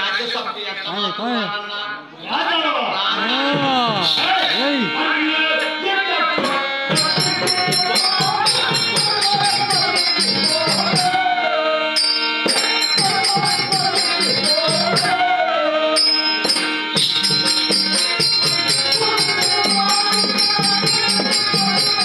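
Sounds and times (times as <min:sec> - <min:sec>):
person singing: 0:03.1 - 0:16.4, 0:18.7 - 0:22.0
drum beats: 0:03.4 - 0:11.3, 0:12.4 - 0:15.4, 0:16.0 - 0:22.0
small cymbals jingling: 0:06.9 - 0:11.1, 0:16.0 - 0:22.0.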